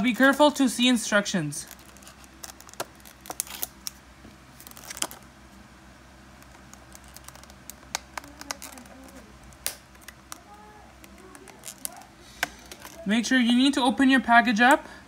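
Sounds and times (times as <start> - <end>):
plastic packaging crinkling: 1.4 - 5.3, 6.3 - 13.1.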